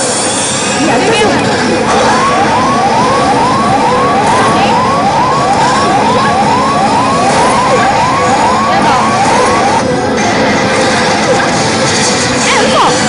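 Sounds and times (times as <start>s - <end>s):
gaming hall din: 0.0s - 13.0s
rising electronic chirps: 1.7s - 9.9s.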